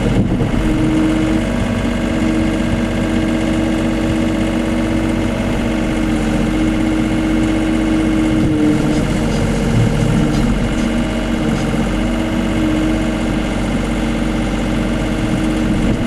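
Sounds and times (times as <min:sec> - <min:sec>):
excavator diesel engine running: 0:00.0 - 0:16.0.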